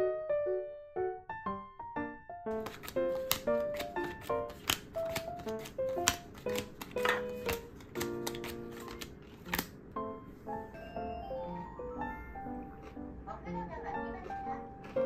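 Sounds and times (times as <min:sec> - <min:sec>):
light background music melody: 0:00.0 - 0:15.0
playing cards slapping on table: 0:02.6 - 0:09.8.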